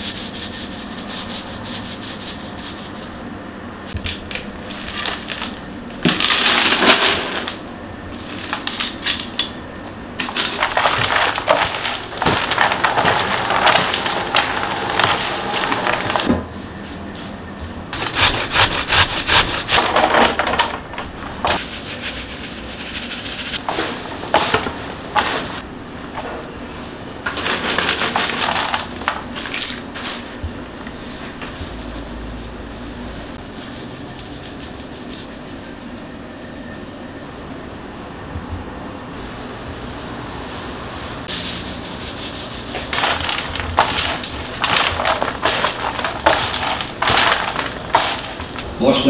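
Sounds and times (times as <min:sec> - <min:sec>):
hands mixing food in plastic basin: 0:10.2 - 0:16.3, 0:21.4 - 0:25.6, 0:27.3 - 0:32.1, 0:41.3 - 0:49.0.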